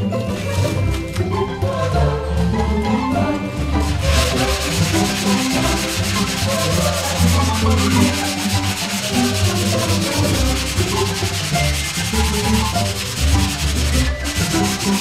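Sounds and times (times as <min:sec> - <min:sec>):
sanding block rubbing: 0:03.8 - 0:15.0.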